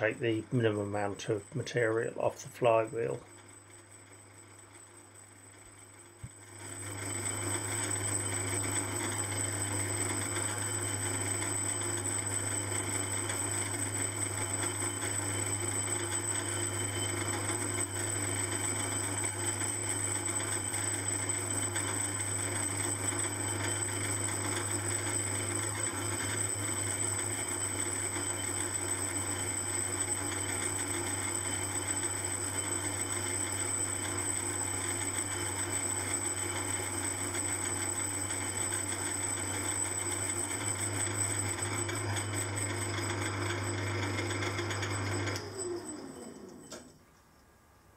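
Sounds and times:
lathe running with high whine: 0.0s - 47.0s.

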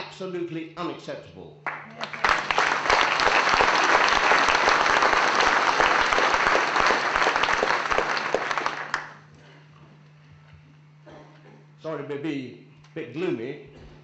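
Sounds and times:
audience applauding: 1.7s - 9.3s.

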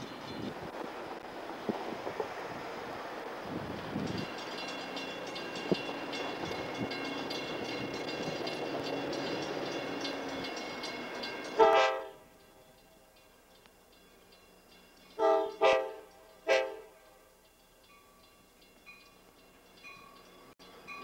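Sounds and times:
wind noise on microphone: 0.0s - 4.4s, 5.5s - 8.7s
locomotive horn: 11.5s - 12.4s, 15.2s - 17.3s.

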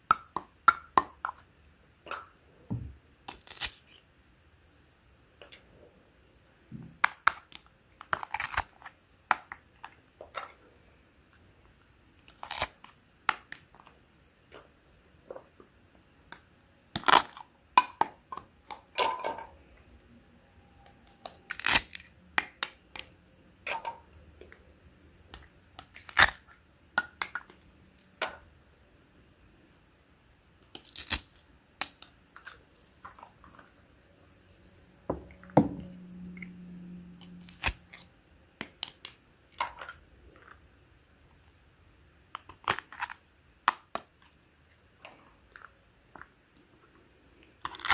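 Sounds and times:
velcro ripping apart: 3.3s - 4.0s, 21.5s - 22.1s, 30.8s - 31.4s.

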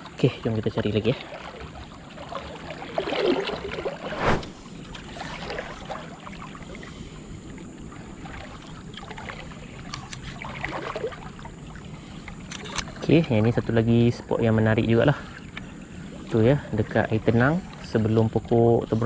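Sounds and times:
water sloshing around legs: 0.1s - 13.6s
sharp thump: 4.2s - 4.6s.

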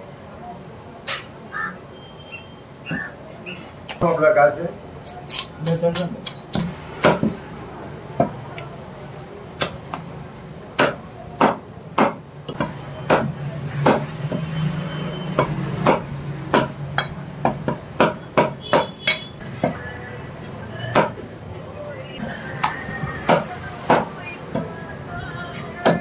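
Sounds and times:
cleaver chopping on a block: 10.8s - 14.4s, 20.9s - 21.2s, 22.6s - 24.1s.

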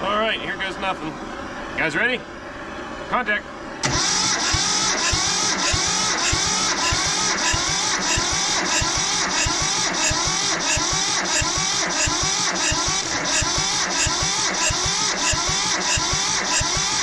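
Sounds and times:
starter cranking diesel engine: 3.8s - 17.0s.

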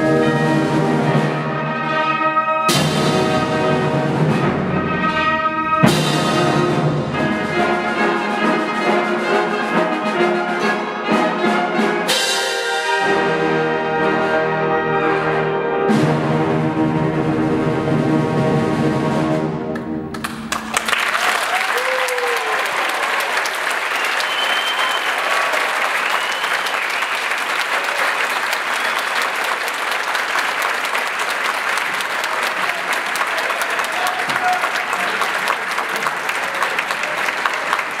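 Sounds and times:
audience applause: 20.1s - 38.0s
audience cheering: 20.2s - 38.0s.

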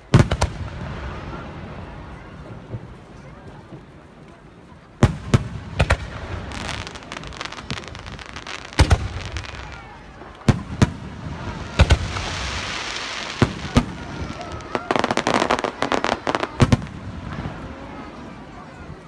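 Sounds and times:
firework crackling fizz: 5.1s - 18.1s.

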